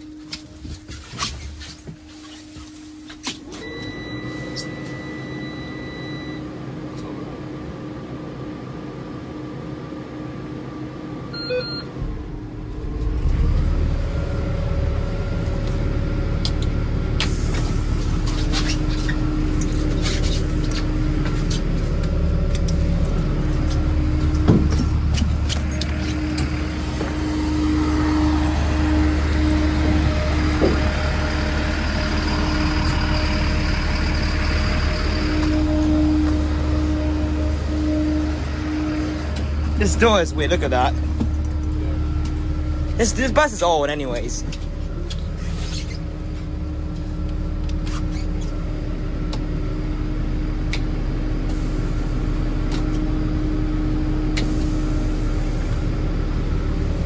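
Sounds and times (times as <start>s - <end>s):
dashboard warning tone: 0.0s - 6.5s, 11.3s - 15.4s, 18.8s - 45.3s
engine cranking and idling: 11.9s - 57.0s.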